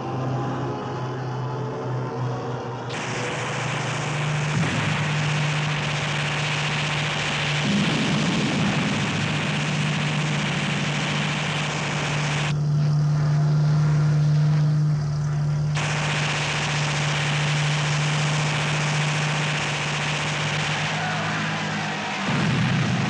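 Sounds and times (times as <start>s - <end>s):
propeller plane engine droning: 0.0s - 23.0s
rushing noise: 2.9s - 12.6s, 15.8s - 23.0s.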